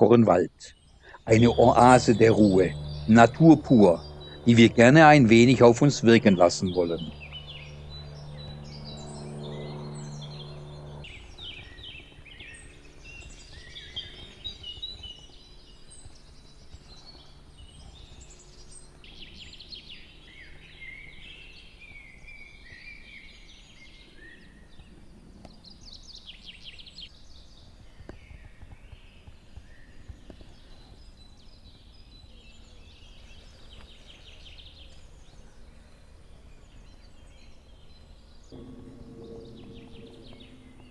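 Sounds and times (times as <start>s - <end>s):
low steady hum: 0.0s - 21.0s, 38.2s - 40.9s
songbirds singing: 0.0s - 40.9s.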